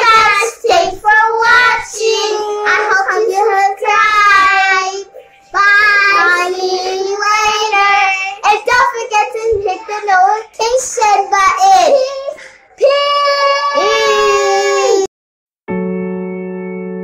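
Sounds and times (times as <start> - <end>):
girls singing together: 0.0 - 8.6.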